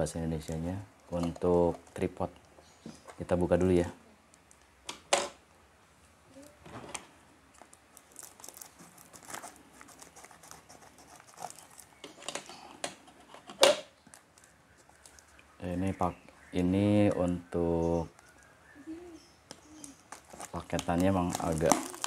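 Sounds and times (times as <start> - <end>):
plastic wrapping tearing and crinkling: 7.5 - 10.6, 19.8 - 22.0.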